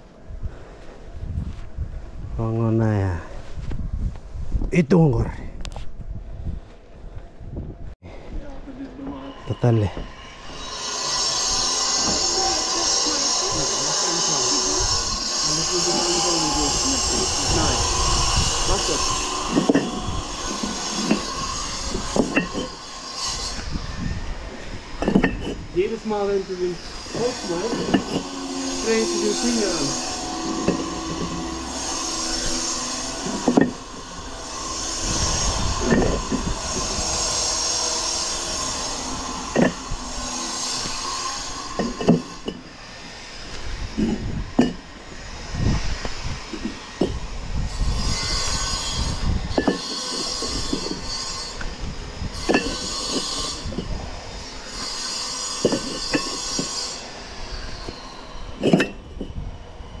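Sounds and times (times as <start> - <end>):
high grating squeal: 9.0 - 60.0
bricks clacking together: 15.1 - 23.5, 25.0 - 25.7, 27.1 - 34.7, 35.8 - 42.7, 44.0 - 44.9, 49.5 - 51.7, 52.4 - 53.9, 54.8 - 57.0, 58.6 - 59.3.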